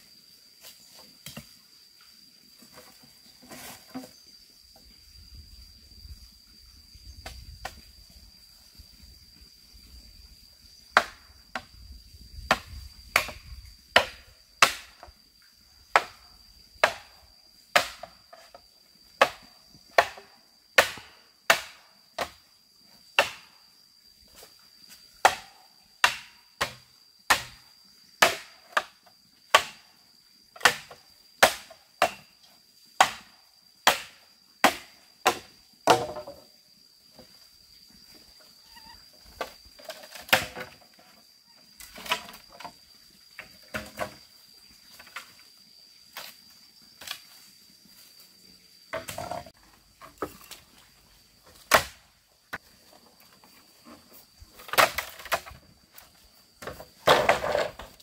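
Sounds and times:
wood chopping blows: 0:12.5 - 0:15.0, 0:20.8 - 0:22.4, 0:23.2 - 0:23.5, 0:25.2 - 0:27.6, 0:33.0 - 0:33.3, 0:51.6 - 0:52.6.

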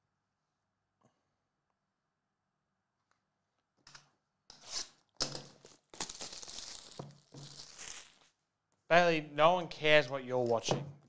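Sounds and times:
plastic wrap tearing and crinkling: 0:04.7 - 0:08.4.

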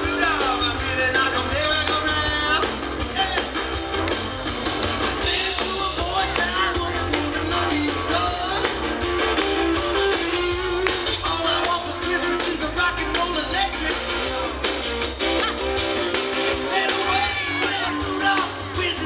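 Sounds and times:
person singing: 0:00.0 - 0:03.8, 0:05.2 - 0:08.8, 0:11.2 - 0:14.4, 0:16.5 - 0:19.0
drum kit: 0:00.0 - 0:19.0
electric guitars: 0:00.0 - 0:19.0.

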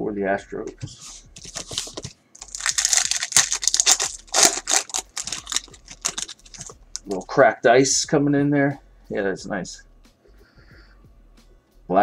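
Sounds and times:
card pack wrapper crinkling and tearing: 0:01.4 - 0:07.2.

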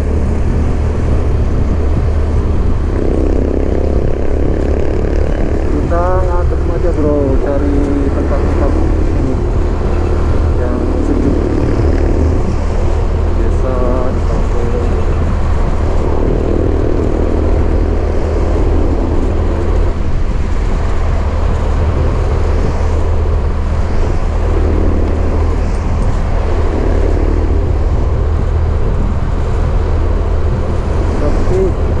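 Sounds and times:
motorcycle engine running: 0:00.0 - 0:32.0
wind on microphone: 0:00.0 - 0:32.0.

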